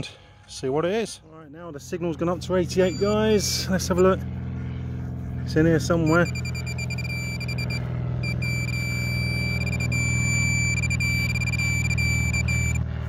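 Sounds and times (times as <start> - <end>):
steady low hum: 1.2 - 13.0
metal detector high tone: 2.7 - 4.2, 5.8 - 12.9.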